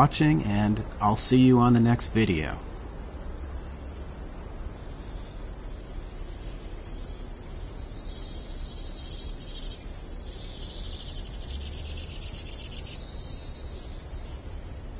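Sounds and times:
low outdoor rumble: 0.0s - 14.9s
insects trilling: 3.2s - 14.9s.

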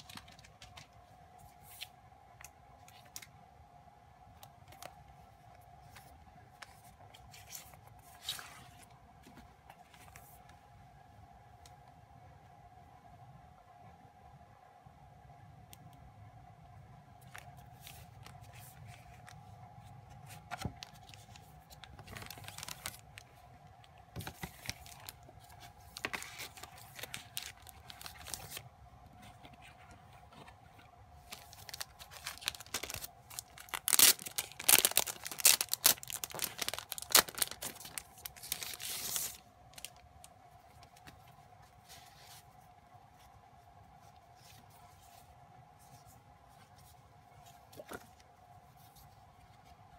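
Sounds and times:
cardboard and plastic rustling: 0.0s - 1.9s, 17.2s - 23.4s, 24.1s - 40.0s
loud plastic crinkling: 20.8s - 23.4s, 24.2s - 28.6s, 31.2s - 40.0s.

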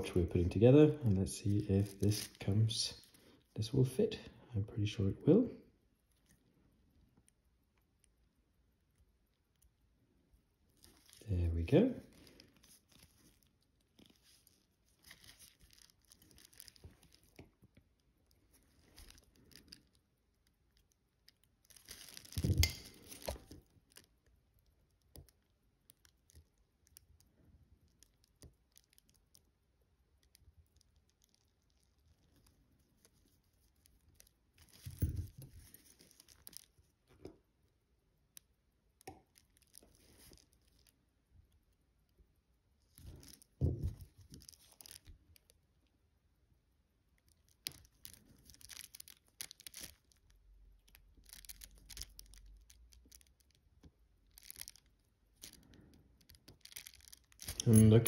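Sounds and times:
handling noises: 56.5s - 58.0s.

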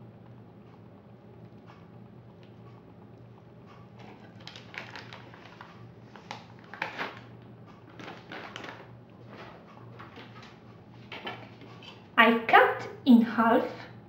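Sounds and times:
paper rustling and crinkling: 4.0s - 7.3s, 7.9s - 12.0s.

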